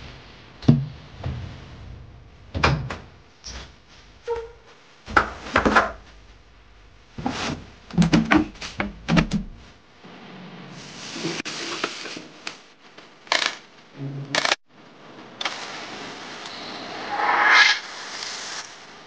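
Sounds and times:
cleaner foaming hiss: 0:15.4 - 0:19.0.

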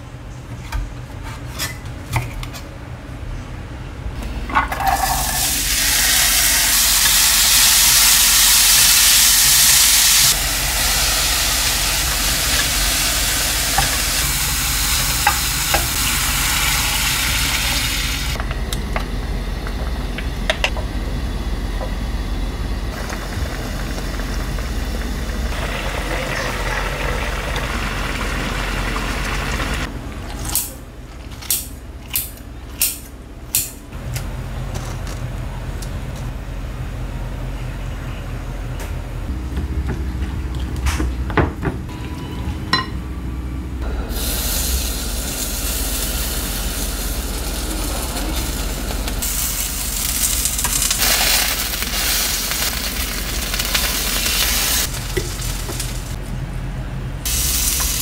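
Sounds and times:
vegetables sizzling in oil: 0:04.9 - 0:18.4, 0:44.1 - 0:56.2, 0:57.3 - 0:58.0.

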